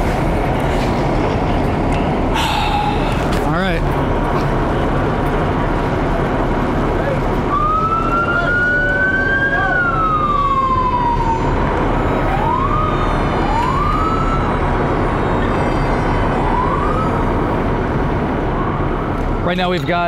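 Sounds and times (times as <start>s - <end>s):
emergency vehicle siren: 7.0s - 20.0s.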